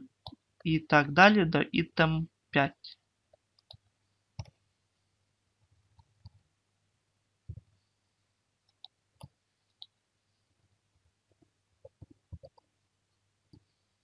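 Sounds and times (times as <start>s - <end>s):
keyboard and mouse clicks: 11.8s - 12.7s.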